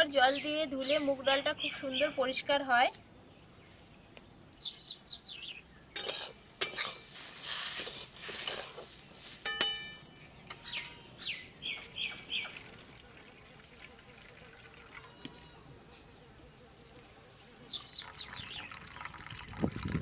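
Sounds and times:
birds chirping: 0.0s - 7.0s, 9.0s - 19.6s
rice frying: 6.0s - 10.5s
metal spatula scraping a wok: 6.0s - 11.0s.

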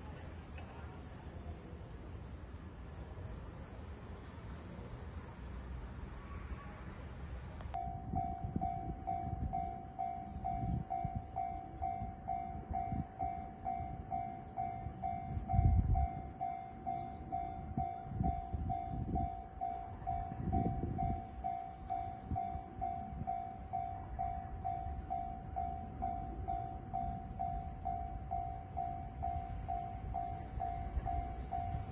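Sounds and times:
level crossing warning bell: 7.7s - 31.9s
rumbling wind gusts: 7.8s - 31.9s.

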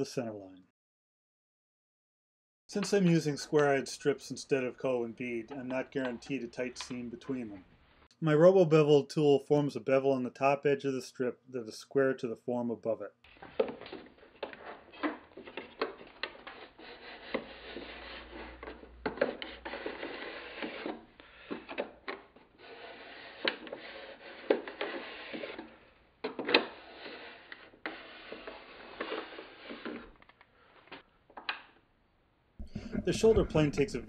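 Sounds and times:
blade scraping wood: 13.3s - 30.3s.

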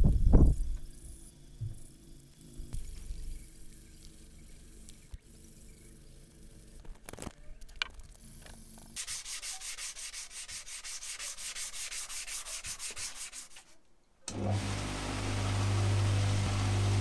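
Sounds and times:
sandpaper rasping on metal: 9.0s - 13.8s.

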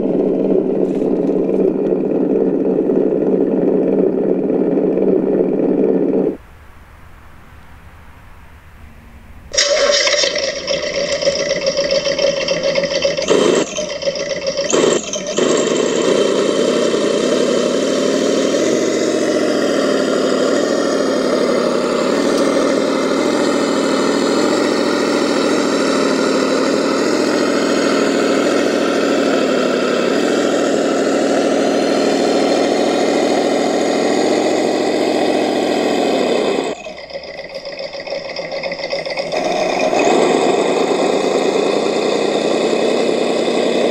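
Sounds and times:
electric motor and gearbox whine: 0.0s - 43.9s.

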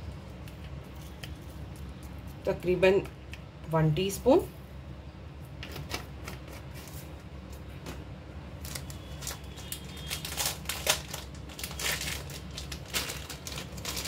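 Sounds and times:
plastic packet crinkling: 8.6s - 14.0s.

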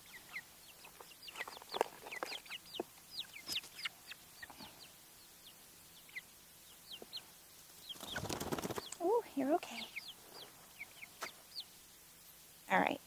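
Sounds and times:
chicks peeping: 0.0s - 12.9s.

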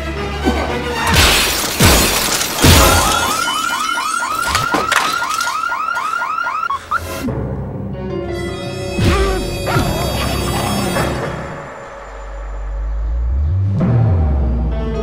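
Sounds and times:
car alarm whooping: 2.6s - 7.2s.

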